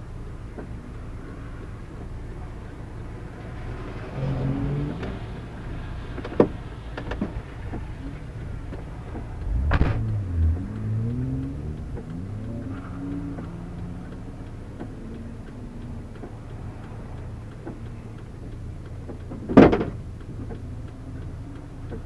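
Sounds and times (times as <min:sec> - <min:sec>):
car engine at low revs: 0:00.0 - 0:22.0
sharp knocks through car: 0:09.6 - 0:10.0, 0:19.4 - 0:20.0.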